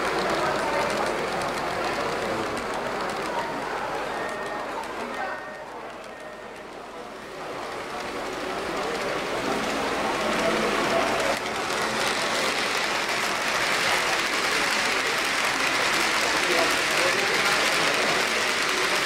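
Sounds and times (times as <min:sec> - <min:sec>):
model train wheels rattling on rails: 0:00.0 - 0:19.0.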